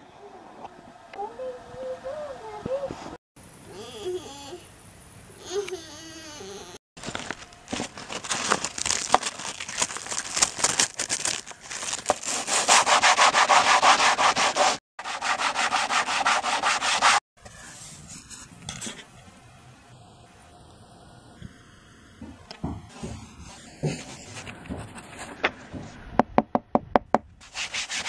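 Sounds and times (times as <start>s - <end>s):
sandpaper rubbing: 12.0s - 18.5s, 27.4s - 28.0s.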